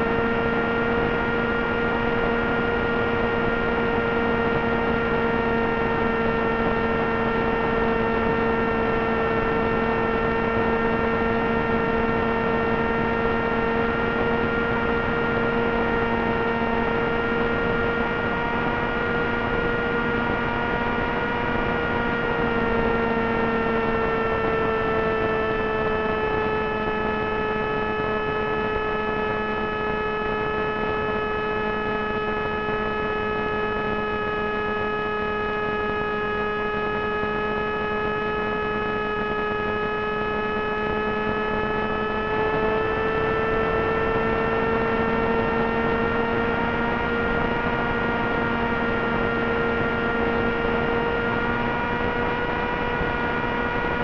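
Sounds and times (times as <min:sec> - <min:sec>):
electric motor propeller whine: 0:00.0 - 0:54.0.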